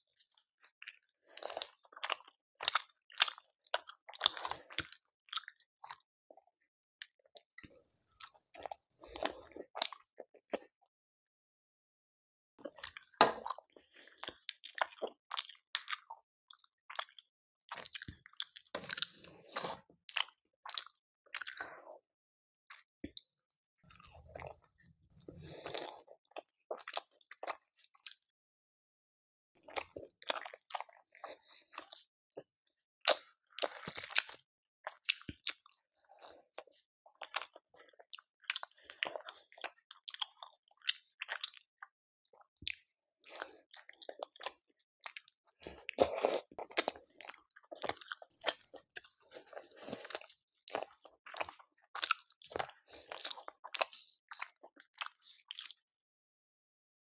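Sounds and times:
close-miked chewing: 0.2s - 6.4s, 12.6s - 22.1s, 29.6s - 56.0s.

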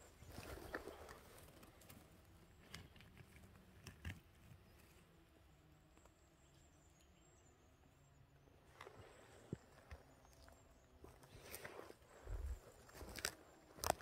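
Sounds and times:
rustling of moss and twigs: 0.0s - 5.0s, 8.7s - 14.0s
twigs snapping: 12.9s - 14.0s.

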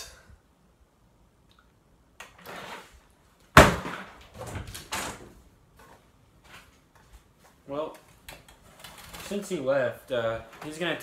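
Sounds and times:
sharp loud knock: 3.6s - 4.0s.

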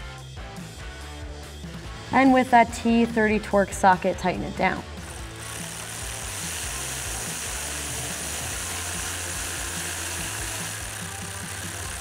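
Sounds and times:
background music: 0.0s - 12.0s
ratchet turning a socket: 4.9s - 12.0s.

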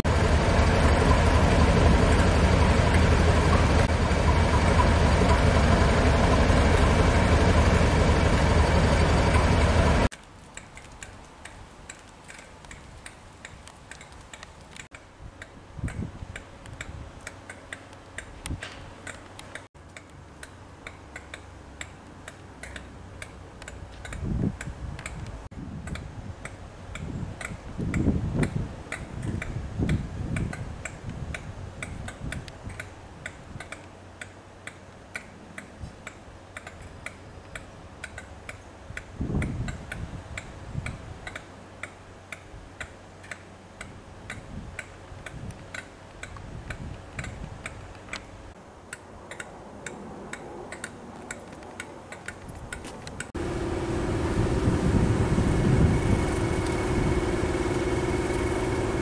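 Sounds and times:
diesel locomotive rumbling: 0.0s - 10.1s, 52.6s - 59.0s
steady regular ticking: 53.2s - 59.0s.

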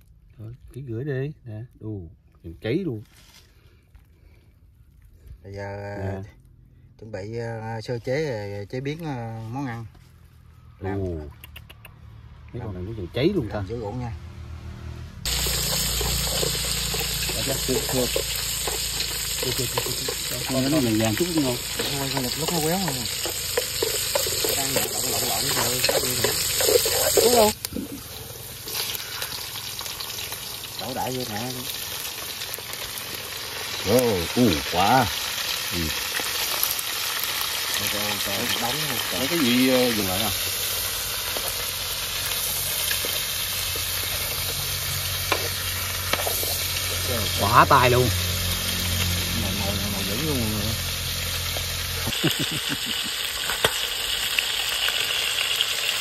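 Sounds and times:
food sizzling in a pan: 15.2s - 56.0s
stirring clicks: 15.4s - 27.6s.

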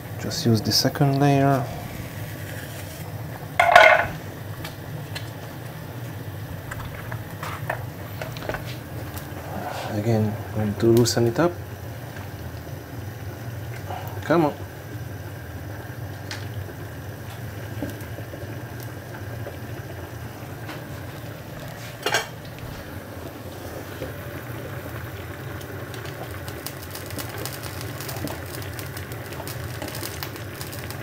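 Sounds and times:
steady low hum: 0.0s - 26.9s
water simmering in saucepan: 0.0s - 31.0s
metal tongs clanking on pan: 3.6s - 4.1s.

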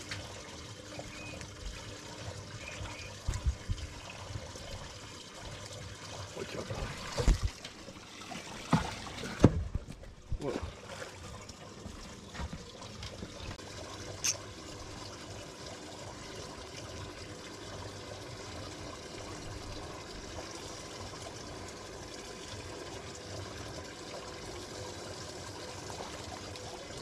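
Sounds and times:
water lapping against boat hull: 0.0s - 13.6s.

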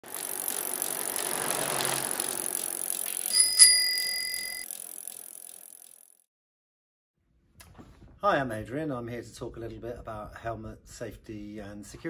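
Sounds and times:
bicycle whirring past: 0.0s - 6.3s
bicycle bell ringing: 3.2s - 4.8s.

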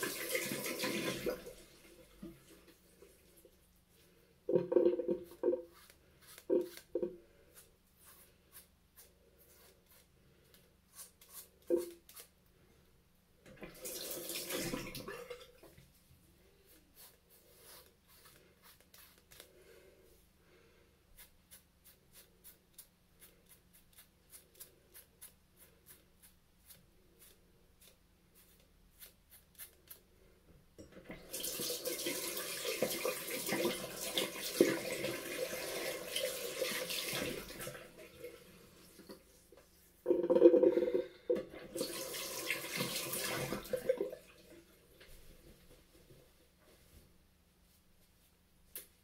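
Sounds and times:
razor scraping scalp: 5.4s - 10.1s, 21.2s - 30.0s.

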